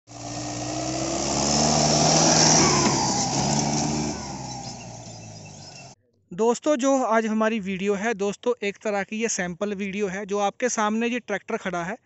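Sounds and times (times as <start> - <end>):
tractor diesel engine under load: 0.0 - 6.0.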